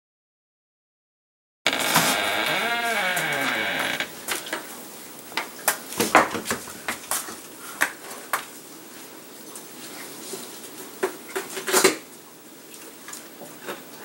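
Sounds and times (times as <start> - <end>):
knocks and clatters in plastic wheelbarrow: 1.8 - 2.2, 5.9 - 7.2.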